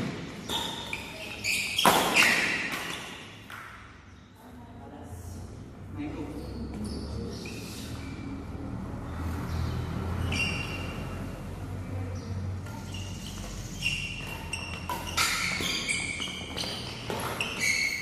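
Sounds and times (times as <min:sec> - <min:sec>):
shoes squeaking on court floor: 0:00.0 - 0:03.6, 0:10.2 - 0:11.2, 0:12.6 - 0:18.0
rackets striking shuttlecock: 0:00.0 - 0:03.9, 0:12.6 - 0:18.0.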